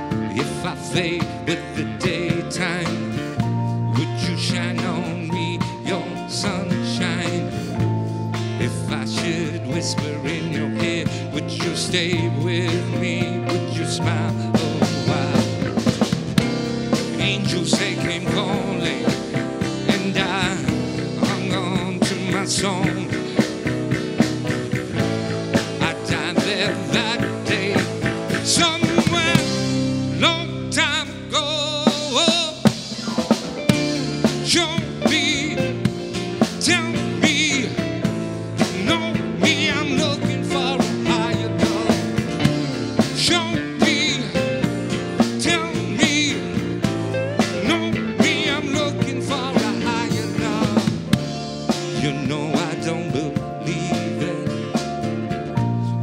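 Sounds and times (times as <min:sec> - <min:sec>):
bass guitar: 0:00.0 - 0:56.0
drum kit beat: 0:00.0 - 0:56.0
electric guitar lead with bent notes: 0:00.0 - 0:56.0
strummed acoustic guitar: 0:14.0 - 0:30.9.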